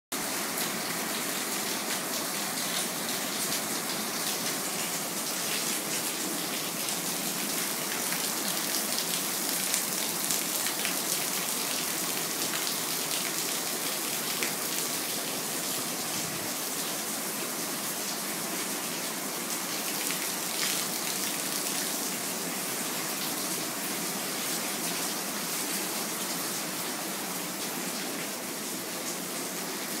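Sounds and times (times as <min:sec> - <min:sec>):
rain falling: 0:00.2 - 0:30.0.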